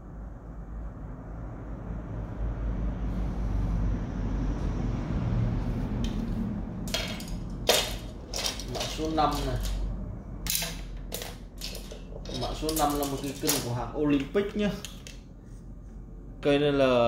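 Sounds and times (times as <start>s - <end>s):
fishing rods clacking together: 6.9s - 15.2s.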